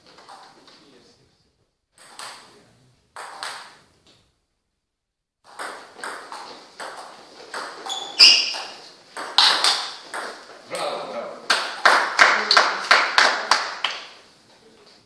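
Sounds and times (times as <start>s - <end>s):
table tennis ball hits: 2.0s - 2.5s, 3.2s - 3.9s, 5.5s - 12.2s
high-pitched squeak: 7.8s - 8.8s.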